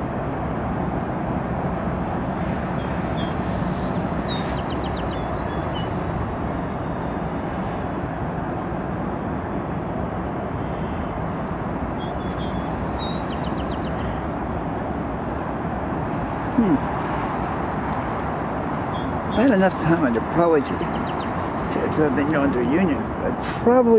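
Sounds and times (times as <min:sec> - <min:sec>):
small birds chirping: 0:02.8 - 0:07.1, 0:11.9 - 0:15.9, 0:18.6 - 0:23.4.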